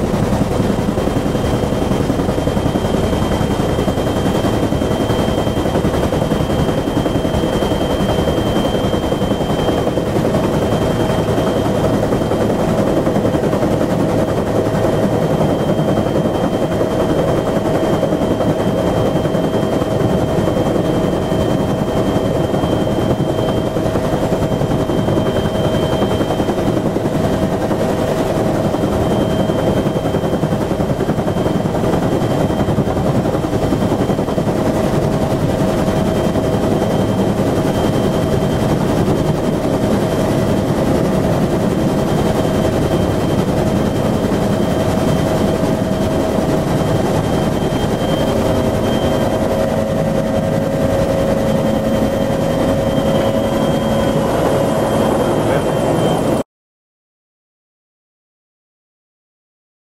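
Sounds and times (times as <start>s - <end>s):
helicopter rotor chopping: 0.0s - 56.4s
high turbine whine: 0.0s - 56.4s.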